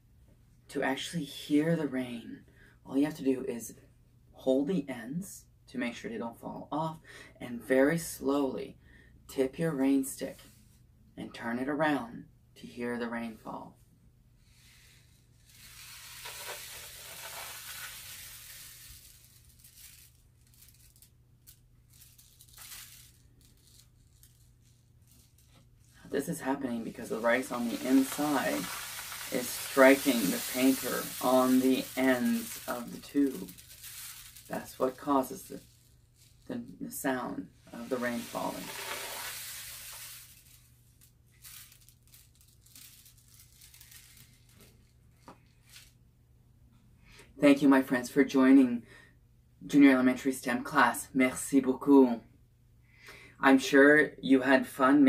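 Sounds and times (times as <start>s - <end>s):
rain stick rice grains pattering: 15.4s - 44.9s.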